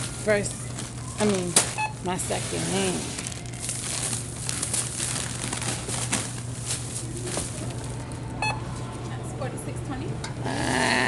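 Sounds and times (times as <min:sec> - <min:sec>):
plastic bag crinkling: 0:00.0 - 0:08.3
steady low hum: 0:00.0 - 0:11.0.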